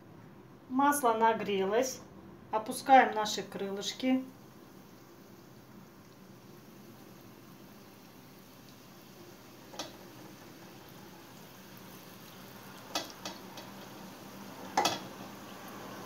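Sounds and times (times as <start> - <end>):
oil sizzling: 3.4 - 16.0.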